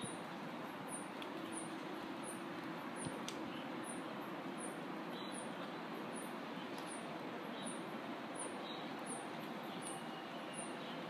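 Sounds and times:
wind rustling leaves: 0.0 - 11.0
faint high chirp: 8.4 - 11.0.

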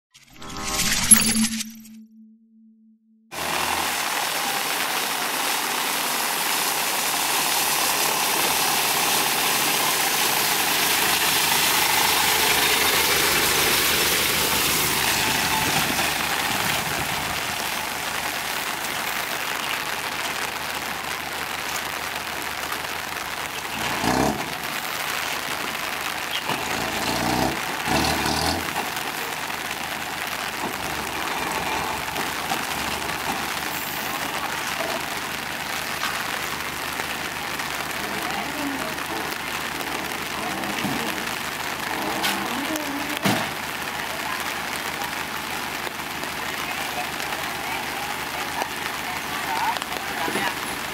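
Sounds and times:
rain hissing: 3.3 - 50.9
truck engine idling: 3.4 - 50.9.

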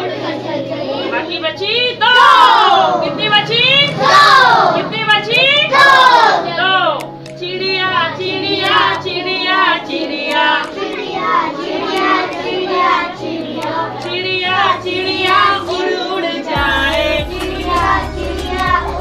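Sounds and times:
children singing in chorus: 2.0 - 19.0
woman singing lead: 12.2 - 19.0.

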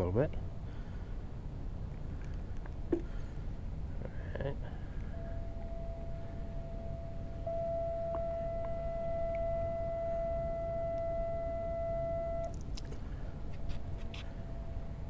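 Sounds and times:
low steady rumble: 0.0 - 15.0
horn long steady note: 5.1 - 12.6, 13.9 - 15.0.

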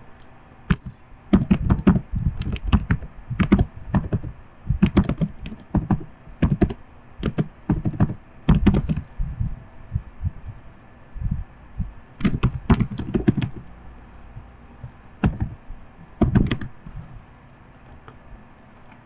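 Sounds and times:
computer keyboard typing: 0.7 - 9.2, 12.2 - 13.7, 15.2 - 15.6, 16.2 - 16.8.

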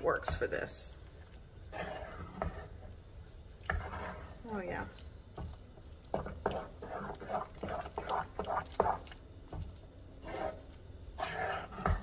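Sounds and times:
wet squelching stirring: 0.0 - 12.0
spatula tapping pan: 4.9 - 9.8.

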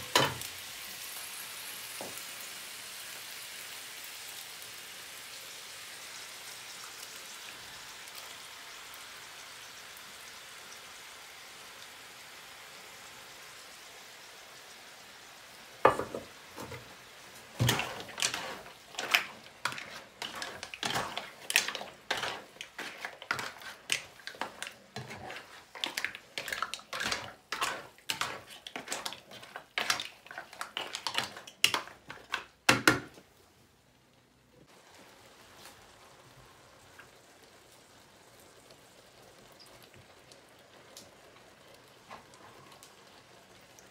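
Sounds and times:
frying pan sizzling: 0.0 - 33.5, 34.7 - 43.9
spatula scraping and knocking pan: 15.9 - 16.9, 17.5 - 33.1.

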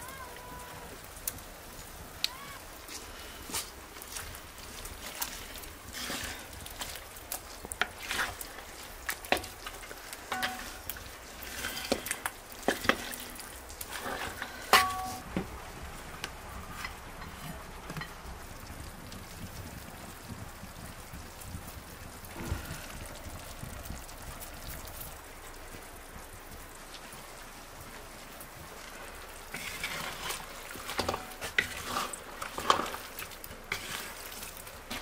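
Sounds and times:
meat sizzling in a pot: 0.0 - 35.0
spatula scraping and knocking pot: 4.1 - 15.5, 29.5 - 33.1, 33.7 - 34.2.

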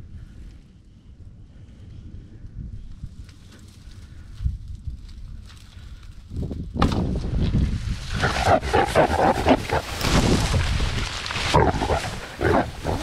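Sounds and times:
crashing through dry grass: 4.8 - 13.0
hog grunting and squealing: 8.1 - 10.3, 11.4 - 13.0.

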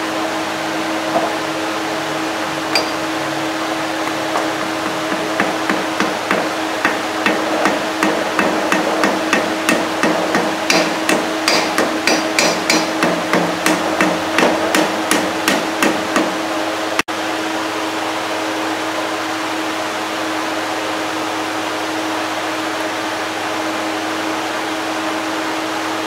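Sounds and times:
steady hum: 0.0 - 26.0
hammer tapping metal: 2.7 - 3.2, 4.0 - 16.4.

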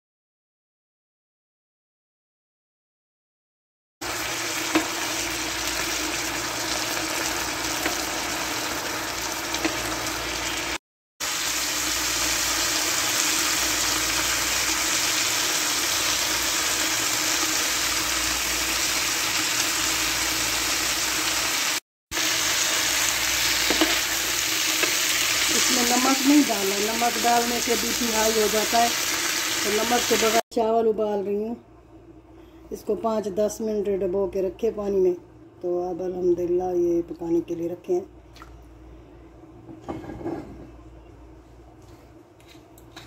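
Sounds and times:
chicken sizzling in a pan: 4.0 - 30.4.

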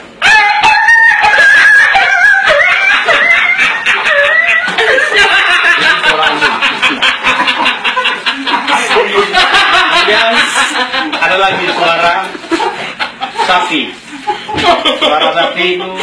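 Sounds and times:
man imitating dog yelps: 0.2 - 4.7
laughter: 0.3 - 16.0.

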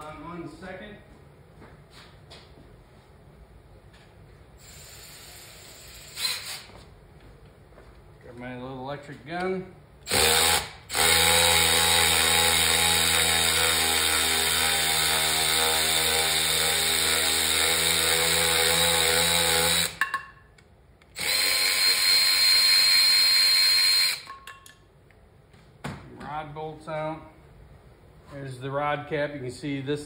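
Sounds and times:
cordless driver spinning bolts: 21.2 - 24.4.

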